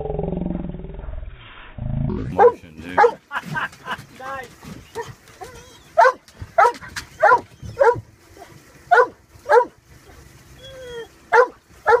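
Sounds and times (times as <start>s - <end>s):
dog barking: 2.3s - 3.2s, 6.0s - 9.8s, 11.3s - 12.0s
dog whining: 4.7s - 8.6s, 10.6s - 11.2s.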